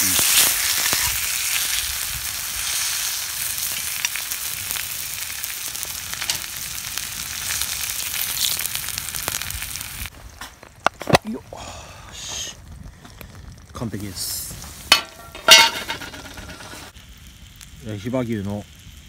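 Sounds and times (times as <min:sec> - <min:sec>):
steak sizzling in frying pan: 0:00.0 - 0:10.1, 0:14.6 - 0:17.6.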